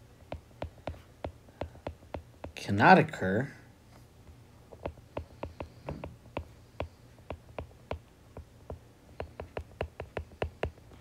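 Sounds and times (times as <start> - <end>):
stylus tapping on glass screen: 0.3 - 2.6, 4.7 - 10.8.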